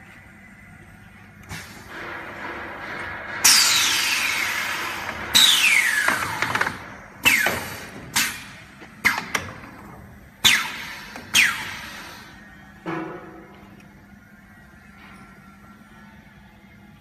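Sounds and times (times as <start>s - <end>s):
pneumatic air hisses: 1.5s - 2.5s, 7.2s - 9.2s, 10.4s - 12.4s.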